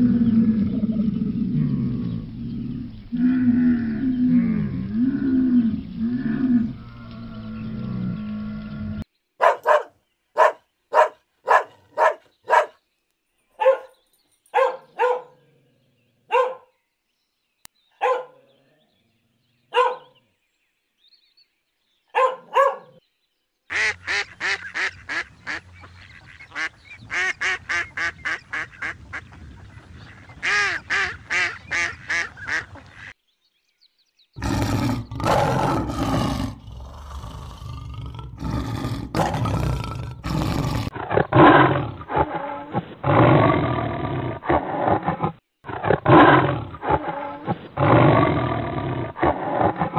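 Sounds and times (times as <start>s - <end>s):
lion roaring: 0.0s - 9.0s, 34.4s - 49.9s
dog barking: 9.4s - 12.8s, 13.6s - 13.9s, 14.5s - 15.4s, 16.3s - 16.7s, 18.0s - 18.4s, 19.7s - 20.2s, 22.1s - 23.0s
duck quacking: 23.7s - 29.3s, 30.4s - 33.1s.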